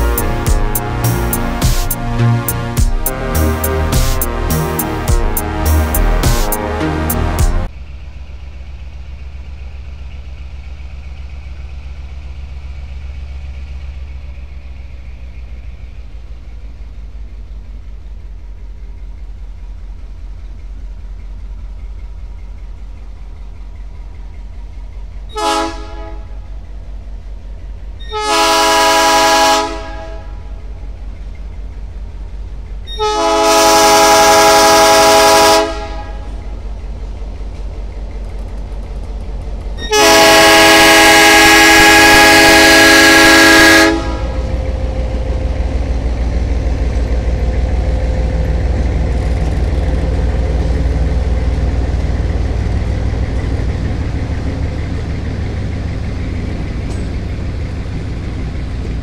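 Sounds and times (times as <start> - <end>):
locomotive air horn blasts: 0.0 - 7.7, 25.3 - 26.5, 28.0 - 30.6, 32.9 - 36.4, 39.8 - 44.8
steady low rumble: 0.0 - 28.0, 34.2 - 59.0.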